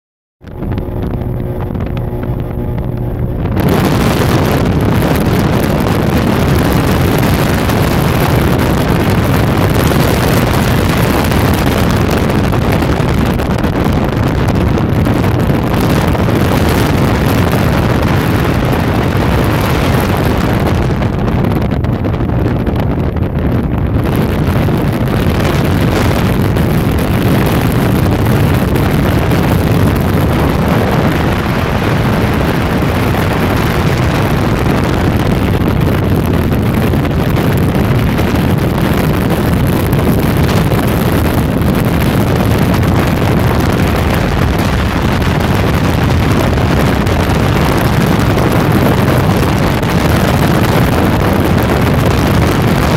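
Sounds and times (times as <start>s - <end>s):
boat engine drone: 0.4s - 52.9s
wind buffeting microphone: 0.4s - 52.9s.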